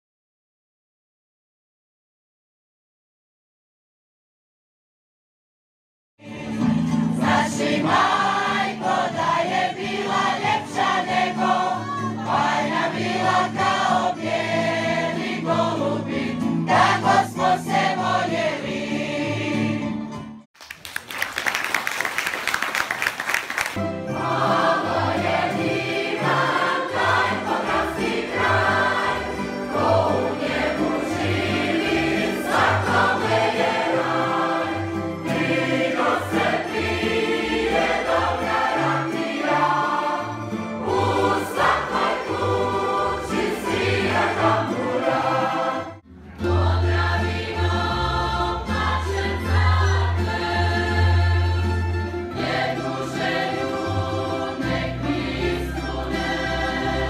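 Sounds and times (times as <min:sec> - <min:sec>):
mixed choir singing: 0:06.2 - 0:20.1, 0:24.0 - 0:57.0
guitar: 0:06.3 - 0:20.4, 0:23.8 - 0:57.0
audience applause: 0:20.6 - 0:24.0
accordion: 0:23.6 - 0:57.0.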